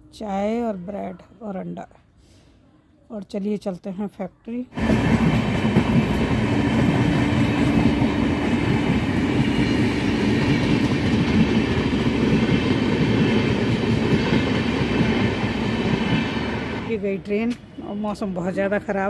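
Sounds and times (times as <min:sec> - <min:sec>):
train wheels rumbling on rails: 0:04.8 - 0:18.9.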